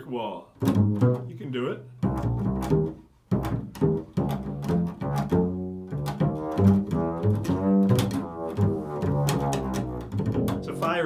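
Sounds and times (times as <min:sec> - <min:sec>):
double bass plucked notes: 0:00.4 - 0:11.0.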